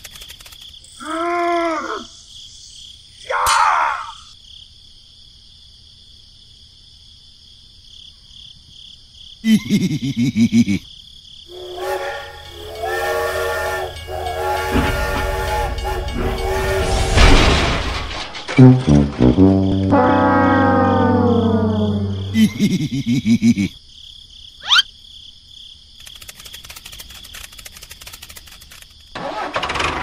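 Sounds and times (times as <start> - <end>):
steam train whistle blowing: 11.5 - 17.4, 19.7 - 22.4
train rumble: 11.5 - 22.6.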